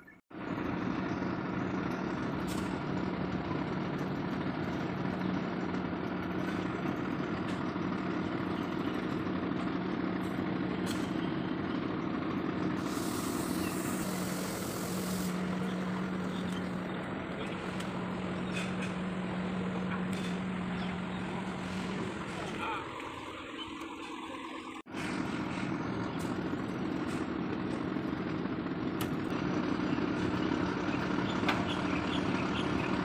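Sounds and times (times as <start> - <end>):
diesel truck engine idling: 0.3 - 33.0
high air hiss: 12.8 - 15.8.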